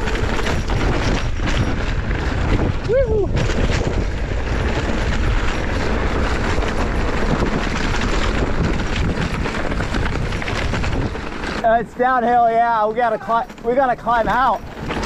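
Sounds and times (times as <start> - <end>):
wind on microphone: 0.0 - 11.6
bike rattling over dirt: 0.0 - 15.0.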